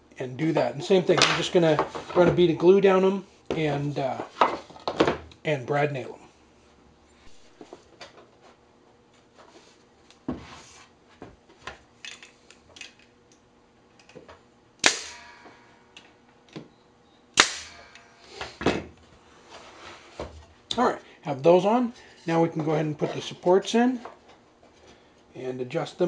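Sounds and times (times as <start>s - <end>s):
brad nailer firing: 14.8s - 15.6s, 17.4s - 18.8s.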